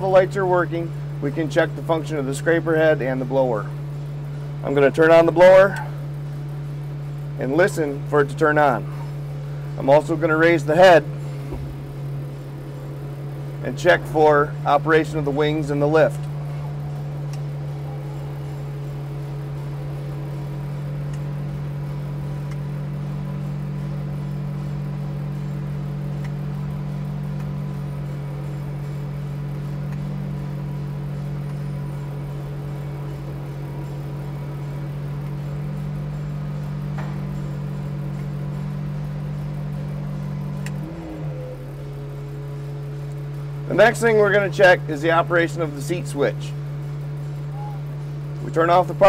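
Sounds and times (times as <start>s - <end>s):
vacuum blower drone: 0.0s - 49.0s
faint clicks: 40.6s - 40.8s.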